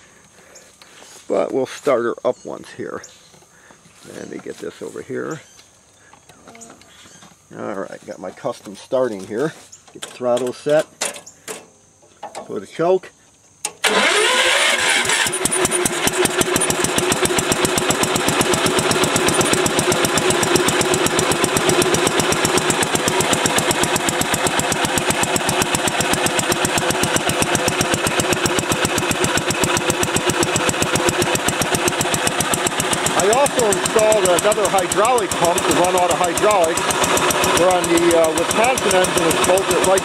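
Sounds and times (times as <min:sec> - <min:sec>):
single-cylinder engine starting and running: 0:13.6 - 0:40.0.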